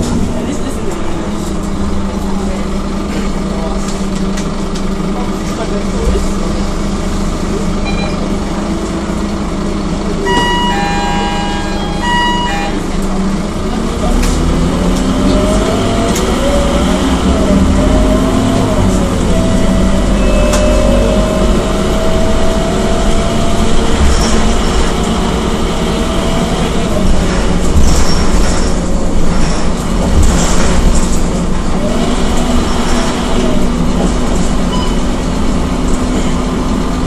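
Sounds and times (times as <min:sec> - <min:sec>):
bus diesel engine droning: 0:00.0 - 0:37.0
bus body knocks and rattles: 0:27.0 - 0:34.7.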